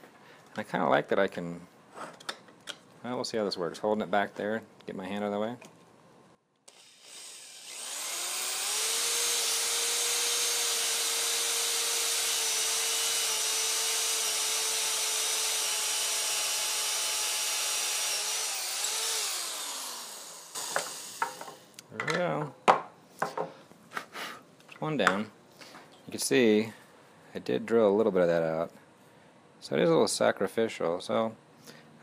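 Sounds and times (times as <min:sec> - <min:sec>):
cordless drill whining: 0:06.7 - 0:21.7.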